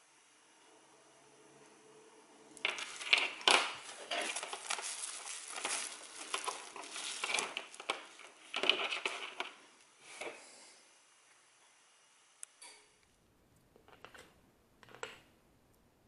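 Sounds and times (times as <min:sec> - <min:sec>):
plastic bag crinkling: 0:02.6 - 0:09.8.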